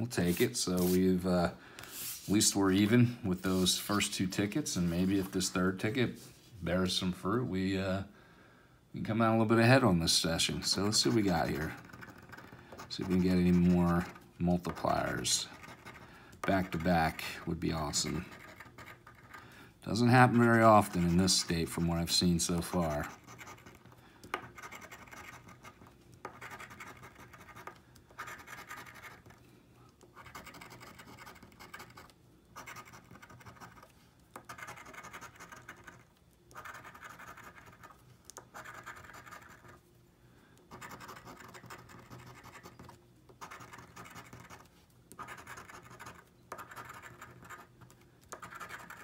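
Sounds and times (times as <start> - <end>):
coin scratching lottery ticket: 10.5 - 17.2, 17.8 - 19.4, 22.6 - 29.4, 30.2 - 39.8, 40.7 - 49.0.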